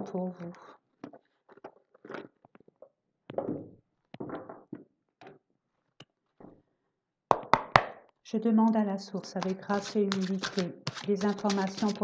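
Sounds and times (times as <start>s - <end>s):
cards rustling when shuffled: 9.4s - 12.0s.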